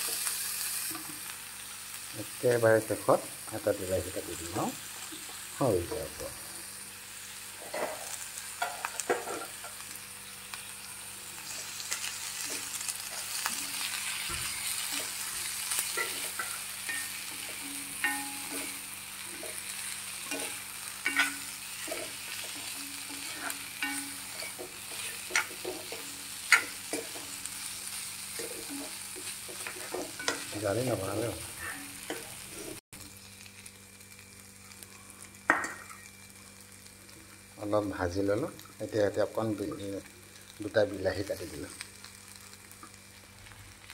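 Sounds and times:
stalks sizzling in oil: 0:00.0 - 0:43.9
spatula scraping pan: 0:11.5 - 0:32.8.

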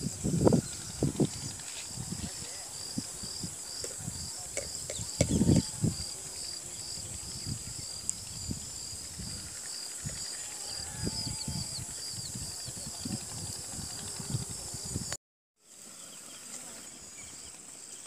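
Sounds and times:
insects droning and chirping: 0:00.0 - 0:18.0.

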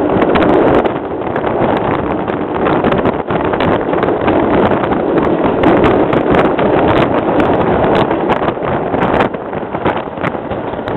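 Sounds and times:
train rushing noise: 0:00.0 - 0:10.9
wind on microphone: 0:00.0 - 0:10.9.

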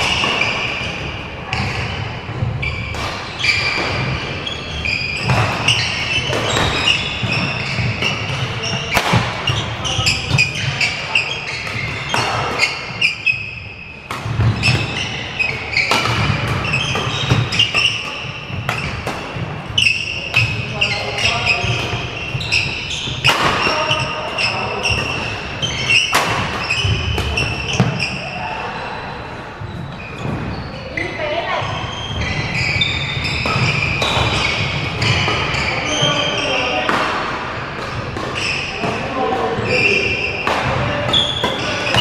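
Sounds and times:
shoes squeaking: 0:00.0 - 0:36.9, 0:37.8 - 0:42.0
rackets striking shuttlecock: 0:05.2 - 0:10.9, 0:14.0 - 0:28.1.

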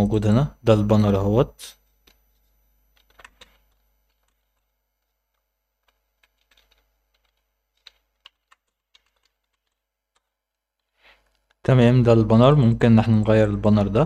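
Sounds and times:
keyboard typing: 0:02.0 - 0:11.6.

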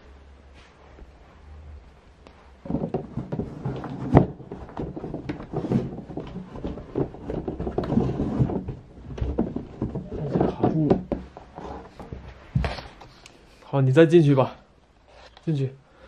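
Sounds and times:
cardboard and plastic knocks and rustles: 0:02.6 - 0:13.2.

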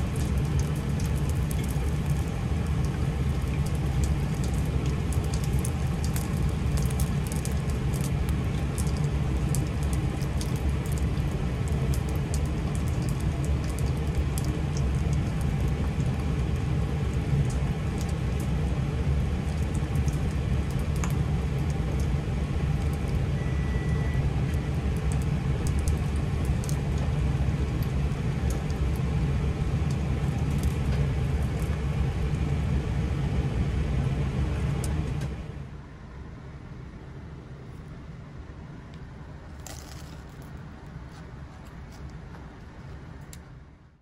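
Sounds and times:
wrapper sizzling in hot oil: 0:00.0 - 0:18.5
steady low rumble: 0:00.0 - 0:44.0.

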